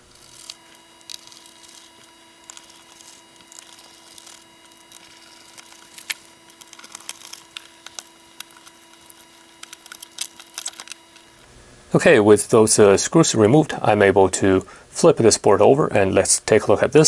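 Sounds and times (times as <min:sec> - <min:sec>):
screwdriver clicks and scrapes: 0:00.0 - 0:11.5.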